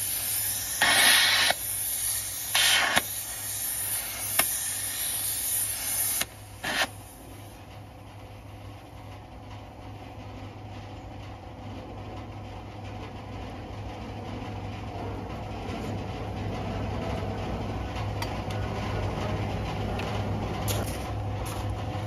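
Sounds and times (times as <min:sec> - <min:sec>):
rushing gas burst: 0:00.0 - 0:07.5
gas torch hissing: 0:00.0 - 0:07.7.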